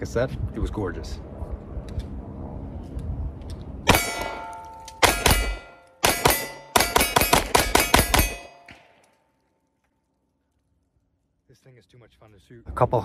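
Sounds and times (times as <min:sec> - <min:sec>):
pistol shots: 0:03.9 - 0:09.0.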